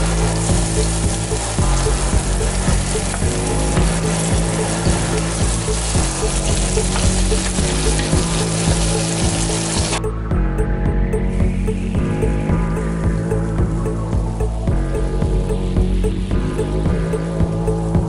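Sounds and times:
garlic and onion sizzling in oil: 0:00.0 - 0:10.0.

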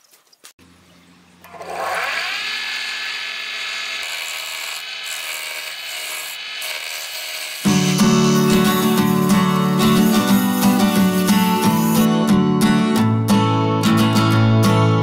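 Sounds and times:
lathe motor whining: 0:01.4 - 0:12.0
acoustic guitar music: 0:07.7 - 0:15.0.

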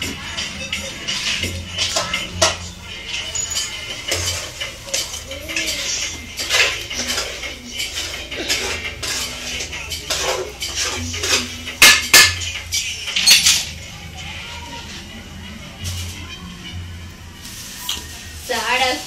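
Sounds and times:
clinks and knocks: 0:13.2 - 0:13.8.

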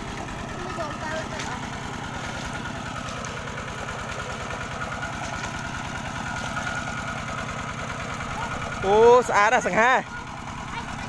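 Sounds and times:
small engine idling: 0:00.0 - 0:11.0.

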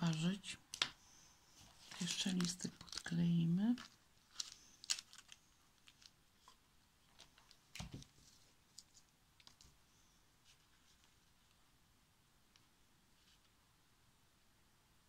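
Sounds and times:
hands handling dried leaves: 0:01.8 - 0:06.6.

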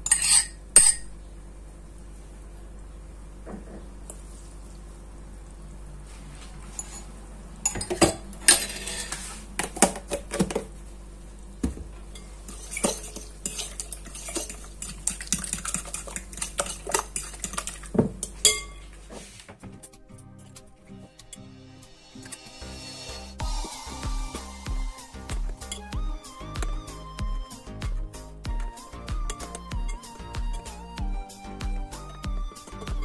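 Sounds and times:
steady low hum: 0:00.0 - 0:33.0
fork whisking in glass bowl: 0:12.2 - 0:18.8.

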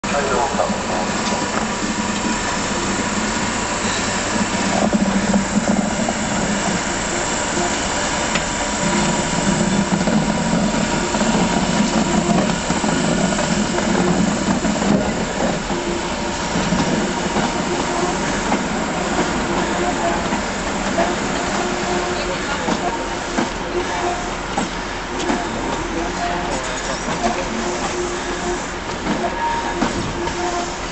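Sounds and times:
electric locomotive hiss and hum: 0:00.1 - 0:30.9.

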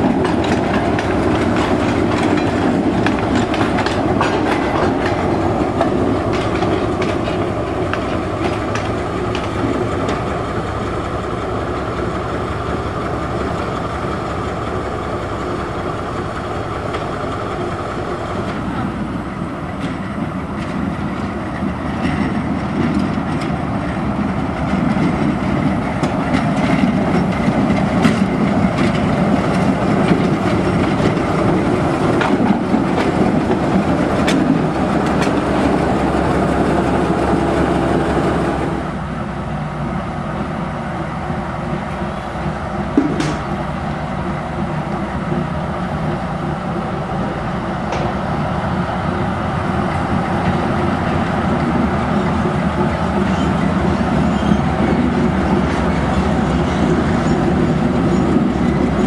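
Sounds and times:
locomotive engine running: 0:00.0 - 0:59.0.

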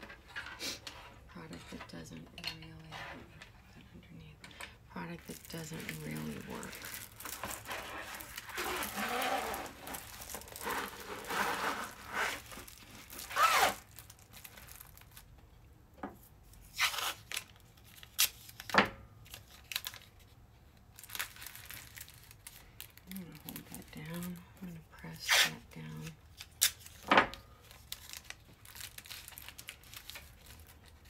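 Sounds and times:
plastic sheet crinkling: 0:05.0 - 0:15.4, 0:16.6 - 0:24.4, 0:25.4 - 0:31.0
tape tearing: 0:05.3 - 0:15.2, 0:16.6 - 0:20.2, 0:25.2 - 0:31.0.

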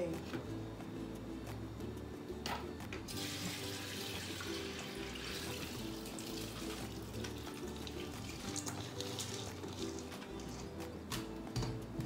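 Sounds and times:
background music: 0:00.0 - 0:12.0
wet rice pouring hiss: 0:03.1 - 0:07.0
water running into sink: 0:03.1 - 0:10.1.

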